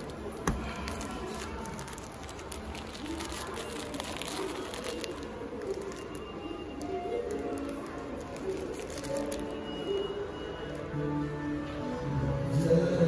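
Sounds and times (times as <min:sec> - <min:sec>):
plastic packaging crinkling: 0:00.0 - 0:10.1
distant voices hubbub: 0:00.0 - 0:13.0.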